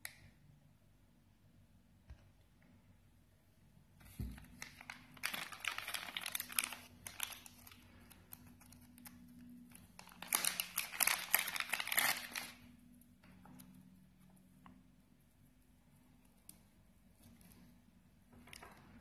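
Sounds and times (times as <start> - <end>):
plastic bag crinkling: 4.3 - 13.6.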